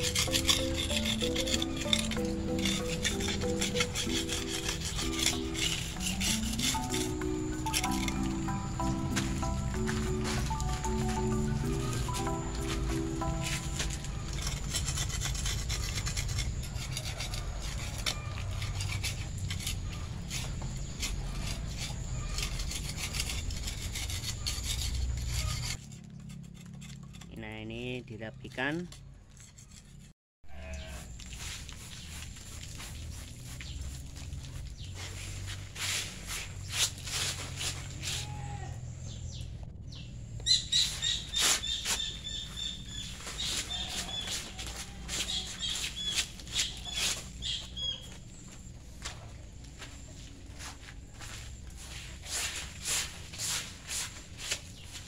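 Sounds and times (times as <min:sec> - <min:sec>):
hand tool scraping cement: 0:00.0 - 0:27.4, 0:41.0 - 0:47.8, 0:51.9 - 0:55.0
bird chirping: 0:38.9 - 0:48.7.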